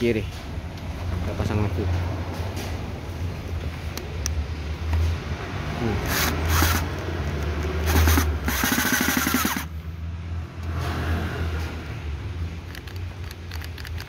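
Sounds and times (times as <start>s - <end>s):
cordless drill whining: 6.0s - 6.9s, 7.8s - 9.7s.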